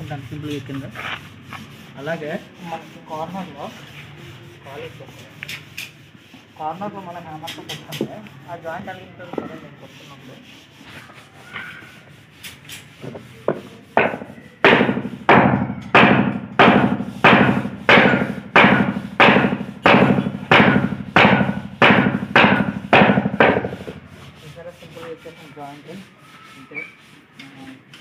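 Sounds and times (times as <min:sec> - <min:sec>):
hammer striking wooden block: 0:13.0 - 0:24.1.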